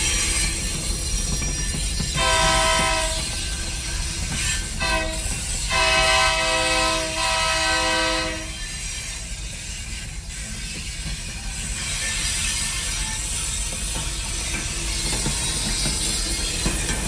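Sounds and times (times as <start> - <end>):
locomotive air horn blasts: 2.2 - 3.4, 4.8 - 8.6.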